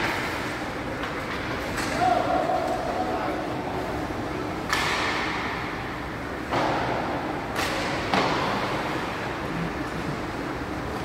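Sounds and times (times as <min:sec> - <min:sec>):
hockey stick and puck clacks: 0:00.0 - 0:02.9, 0:04.6 - 0:05.5, 0:06.5 - 0:08.9.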